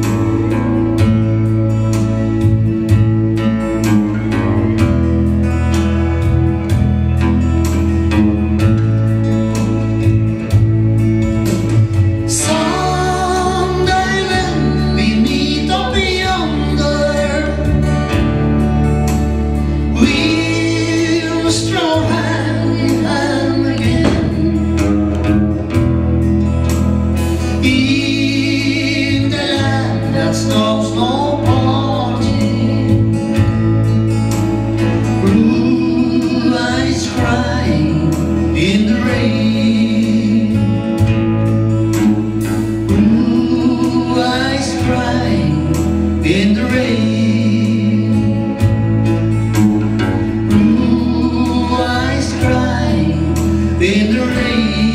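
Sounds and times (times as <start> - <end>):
bass accompaniment: 0.0 - 54.9
strummed acoustic guitar: 0.0 - 54.9
woman singing into a microphone: 19.9 - 25.3, 35.2 - 41.1, 42.9 - 48.7, 50.0 - 54.9.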